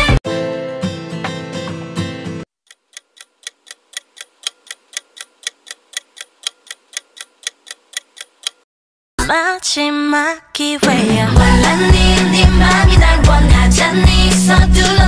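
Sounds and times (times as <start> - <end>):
clock ticking: 2.6 - 8.6
pop music: 9.2 - 15.0
pop music with singing: 9.2 - 15.0.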